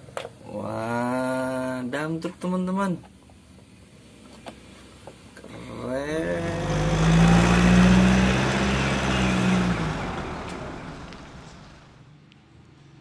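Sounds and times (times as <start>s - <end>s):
truck diesel engine driving past: 5.7s - 12.0s.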